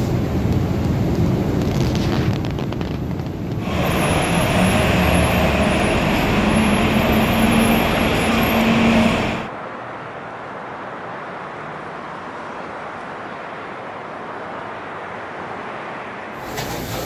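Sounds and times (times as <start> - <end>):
distant traffic: 0.0 - 17.0
engine low hum: 3.5 - 9.5
loud traffic noise: 3.5 - 17.0.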